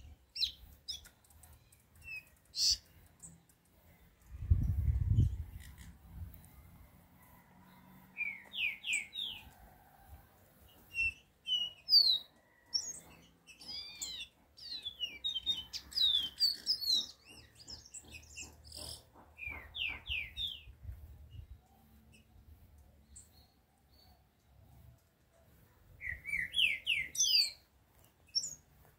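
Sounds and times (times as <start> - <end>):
songbird singing high whistles: 26.0 - 27.6.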